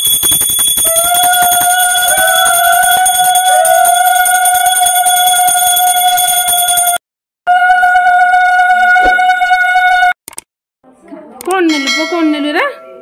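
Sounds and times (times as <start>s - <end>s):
brass hand bell ringing rapidly: 0.0s - 7.0s.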